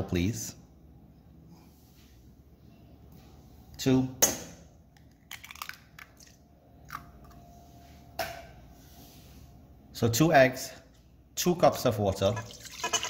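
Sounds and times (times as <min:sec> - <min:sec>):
eggshell cracking: 0:04.9 - 0:07.4.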